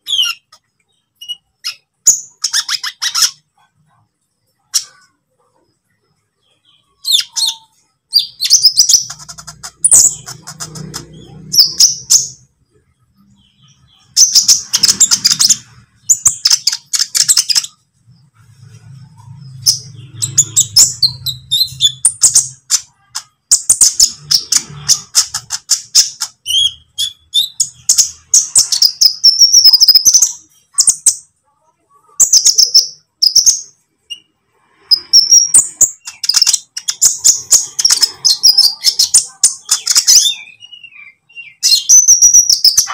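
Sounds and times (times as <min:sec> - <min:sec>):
bird twittering: 0:06.4 - 0:12.5.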